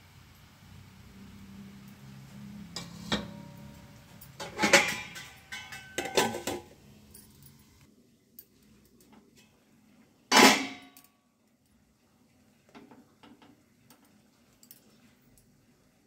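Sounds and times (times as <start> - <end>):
steel lid clinking on pot: 2.7 - 6.7
metal clattering with ringing: 2.8 - 7.6.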